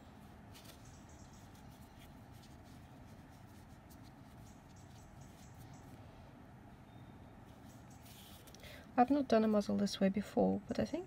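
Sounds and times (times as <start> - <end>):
yarn drawn through fabric: 7.5 - 8.6.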